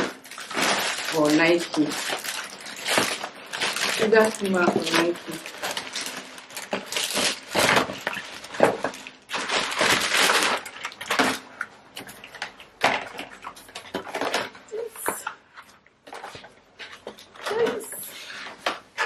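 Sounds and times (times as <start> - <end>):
plastic mailer bag rustling: 0.0 - 11.6.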